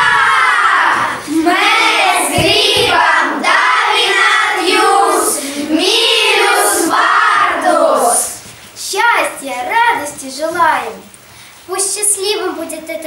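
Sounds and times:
children singing in chorus: 0:00.0 - 0:08.4.

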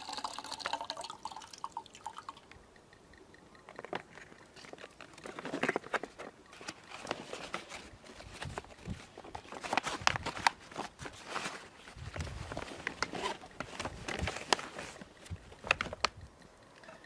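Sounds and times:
plastic water canister crinkling: 0:03.7 - 0:16.2.

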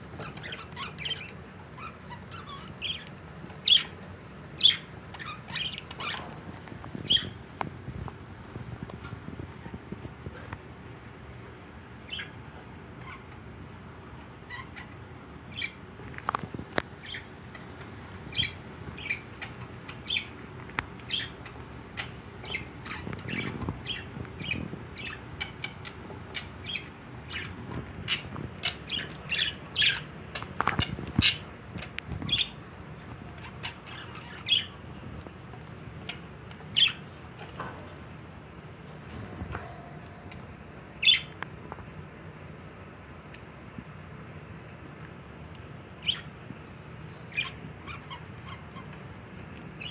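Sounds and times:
budgerigars chirping: 0:00.2 - 0:04.0, 0:04.6 - 0:06.3, 0:07.0 - 0:07.4, 0:12.1 - 0:12.4, 0:14.5 - 0:15.8, 0:17.0 - 0:17.7, 0:18.3 - 0:20.4, 0:21.0 - 0:32.6, 0:33.2 - 0:34.8, 0:36.0 - 0:37.1, 0:41.0 - 0:41.4, 0:46.0 - 0:46.3, 0:47.3 - 0:49.0.

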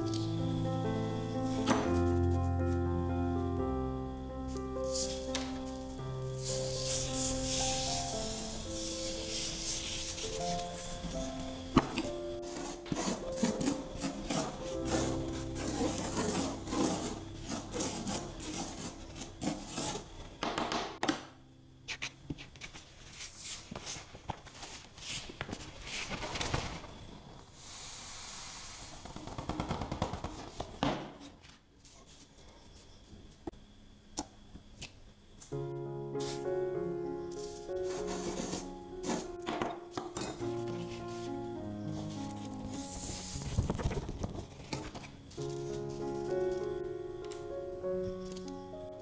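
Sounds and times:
soft background music: 0:00.0 - 0:20.0, 0:35.5 - 0:49.0
hands rubbing sand on paper: 0:04.8 - 0:05.3, 0:06.4 - 0:20.1, 0:21.9 - 0:26.3, 0:37.4 - 0:38.8, 0:42.0 - 0:44.0.

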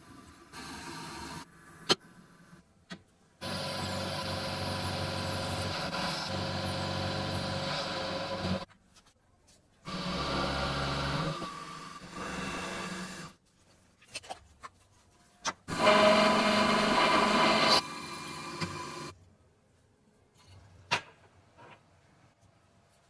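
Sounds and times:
milling machine cutting metal: 0:15.7 - 0:19.1.

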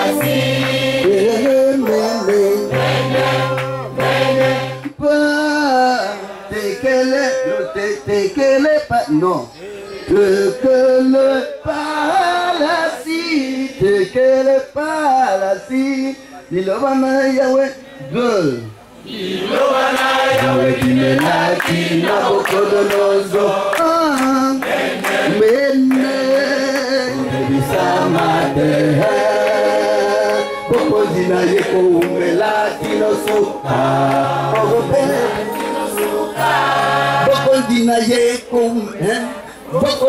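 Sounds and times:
choir singing: 0:00.0 - 0:04.9, 0:19.1 - 0:23.8, 0:24.6 - 0:37.8.

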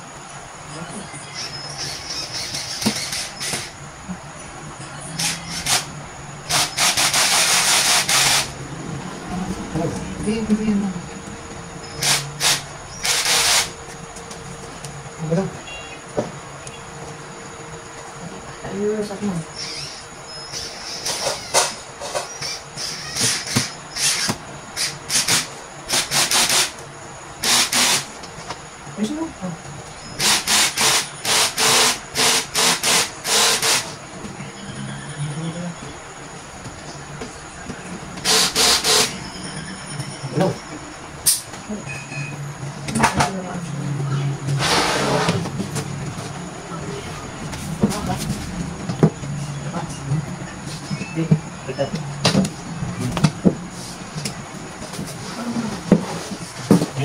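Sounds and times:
cordless drill driving screws: 0:02.4 - 0:03.7, 0:05.2 - 0:05.9, 0:06.5 - 0:08.5, 0:12.0 - 0:13.7, 0:27.4 - 0:28.1, 0:30.2 - 0:33.9, 0:38.2 - 0:39.1.

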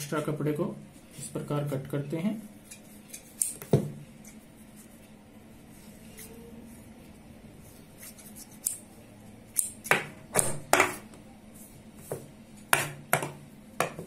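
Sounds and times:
scissors snipping fabric: 0:02.7 - 0:04.4, 0:08.0 - 0:08.9.

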